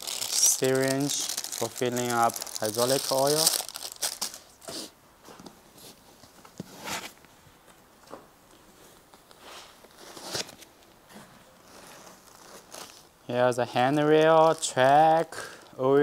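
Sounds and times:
plastic bags rustling: 0.0 - 4.9, 13.7 - 15.8.

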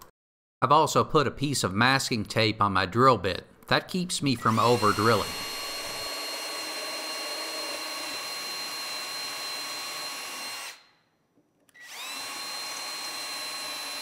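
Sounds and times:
cordless drill drilling: 4.4 - 10.9, 11.7 - 14.0.

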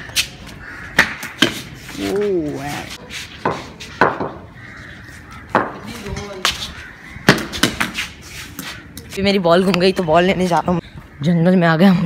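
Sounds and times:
ball hitting wooden bat: 5.5 - 5.8, 7.2 - 8.0.

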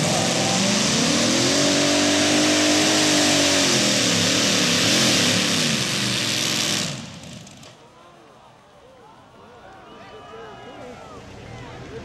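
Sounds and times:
tractor engine at full throttle: 0.0 - 7.8.

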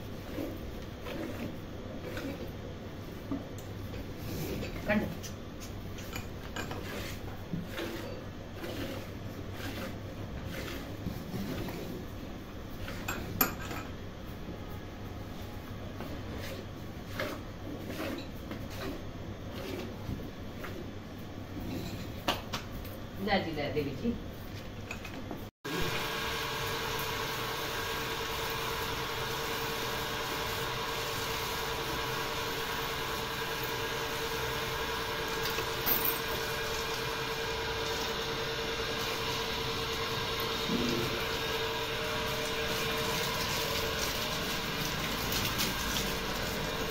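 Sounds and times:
water spraying from a hose: 40.0 - 46.9.

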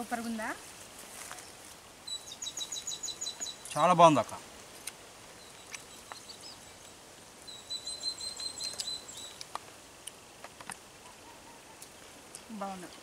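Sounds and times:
bird chirping: 1.4 - 9.6.

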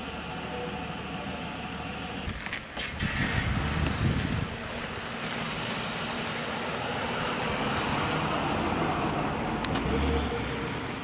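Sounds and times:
vehicle engine rumbling: 0.0 - 11.0
wind noise on microphone: 2.2 - 5.1.

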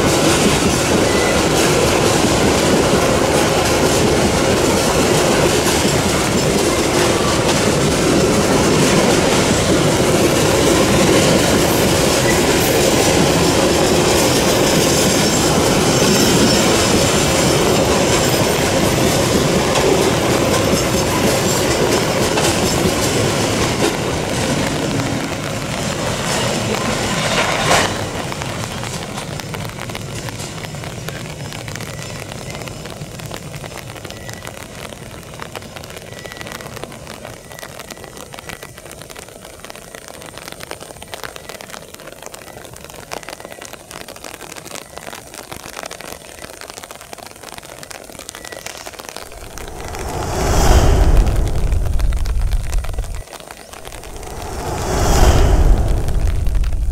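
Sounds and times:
steady hiss: 49.2 - 56.9
loud low rumble: 49.3 - 56.9.

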